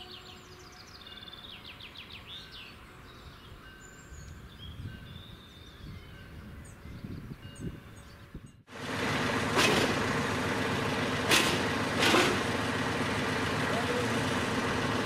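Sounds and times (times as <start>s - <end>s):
bird chirps: 0.0s - 8.6s
low outdoor rumble: 8.7s - 15.0s.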